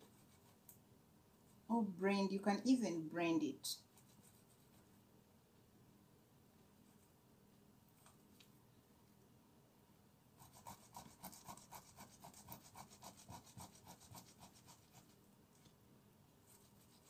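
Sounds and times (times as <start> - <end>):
potato grated on metal grater: 10.4 - 15.1.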